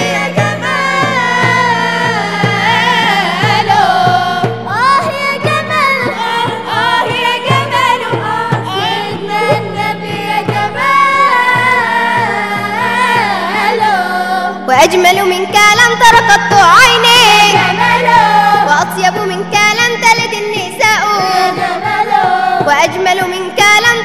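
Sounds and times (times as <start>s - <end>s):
steady drum beat: 0.0s - 13.9s
group singing devotional song: 0.0s - 24.0s.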